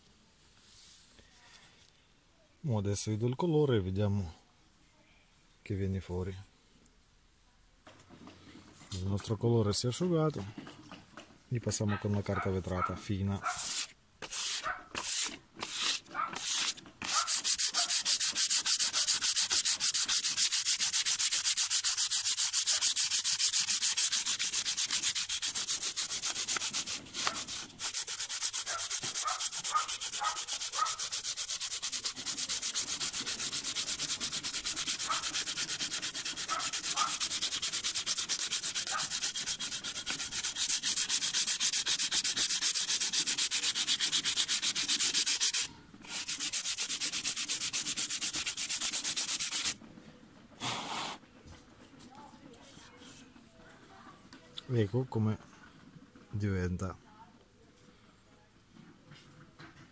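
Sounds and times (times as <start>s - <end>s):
sandpaper rubbing on wood: 13.3s - 49.8s.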